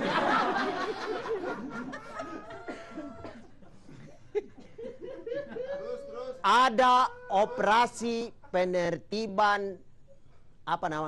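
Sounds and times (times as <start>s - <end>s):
audience laughing: 0.0s - 6.4s.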